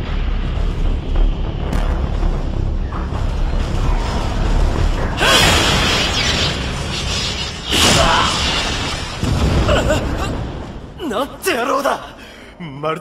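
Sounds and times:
background music: 0.0 - 13.0
weapon fire blasts: 5.2 - 10.8.

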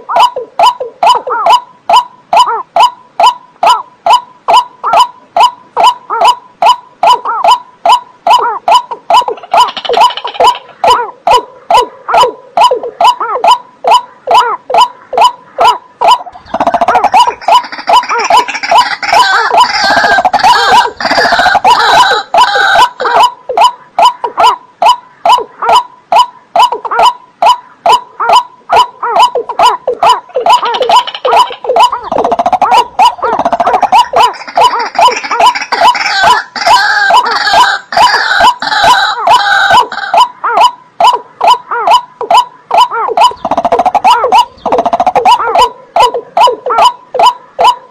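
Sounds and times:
waterbird calls: 0.0 - 47.9.

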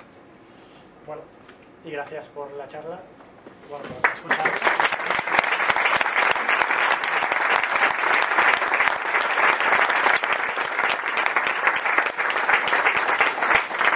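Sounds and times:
audience applauding: 4.0 - 13.9.

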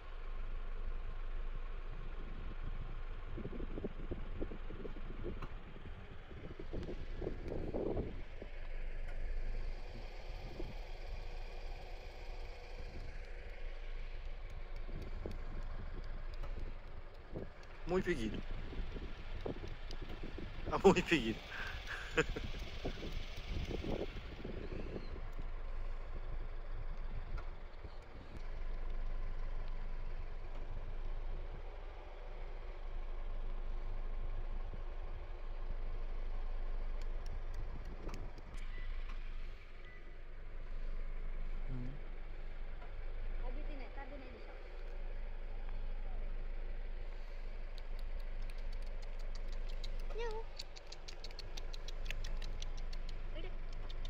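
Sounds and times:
low background rumble: 0.0 - 54.0
light clicks: 47.4 - 54.0.

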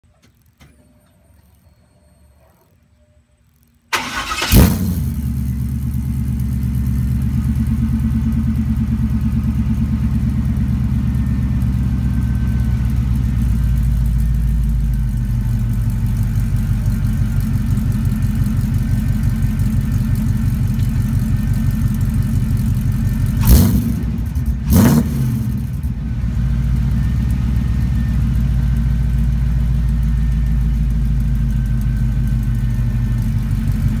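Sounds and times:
car engine idling: 3.9 - 34.0
loud exhaust bursts: 23.3 - 27.0.

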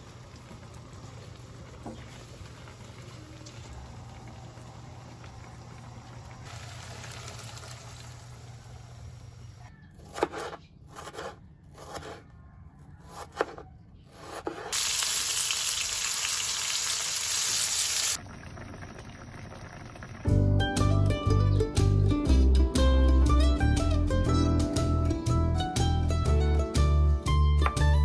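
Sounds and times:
food bubbling in a wok: 0.0 - 8.6, 18.1 - 20.3
loud sizzle in hot oil: 0.0 - 9.4, 14.7 - 20.3
knife slicing on wooden board: 10.0 - 12.2, 13.0 - 14.8.

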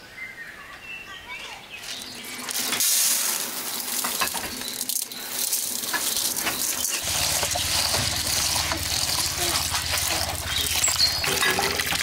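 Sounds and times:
grains pouring into metal bowl: 2.5 - 12.0
tap water running into bowl: 5.8 - 12.0.

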